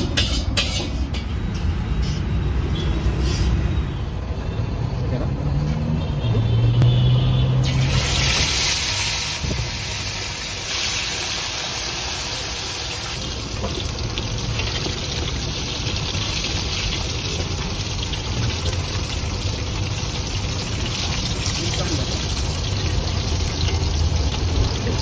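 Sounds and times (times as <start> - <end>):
fish sizzling in hot oil: 7.6 - 25.0.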